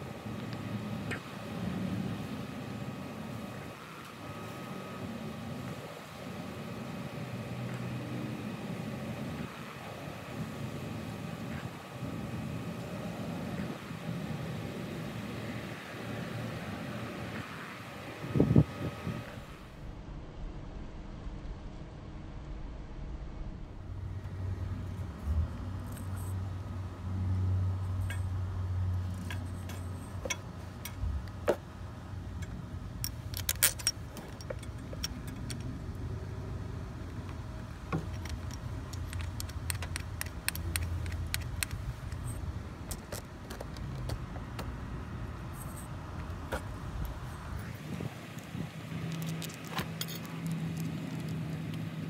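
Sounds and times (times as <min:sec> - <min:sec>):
low rumble: 0:19.8 - 0:26.0
metal tools clinking: 0:32.4 - 0:35.8, 0:49.1 - 0:51.4.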